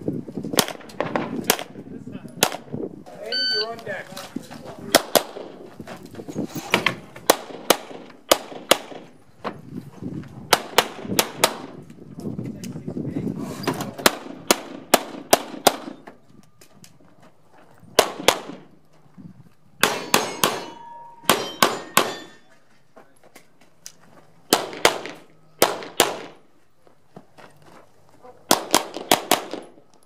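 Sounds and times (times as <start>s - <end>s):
pistol shots: 7.3s - 9.1s, 18.0s - 18.7s, 24.5s - 26.4s, 28.5s - 29.8s
steel target ringing: 19.8s - 22.5s.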